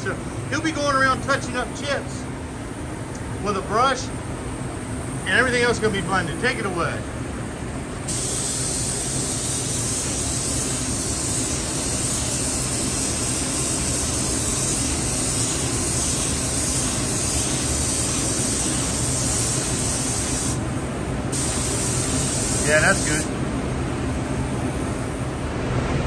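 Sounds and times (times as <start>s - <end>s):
paint spray gun hissing: 8.0s - 23.4s.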